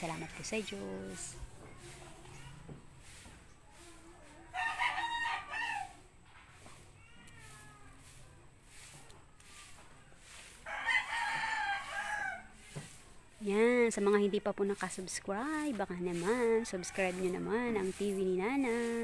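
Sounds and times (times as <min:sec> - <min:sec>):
rooster crowing: 0:04.6 - 0:06.0, 0:10.6 - 0:12.5.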